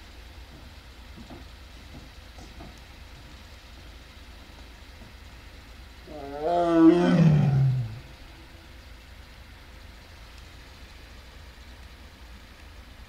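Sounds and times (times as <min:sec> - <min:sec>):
tiger roaring: 0:06.0 - 0:08.3.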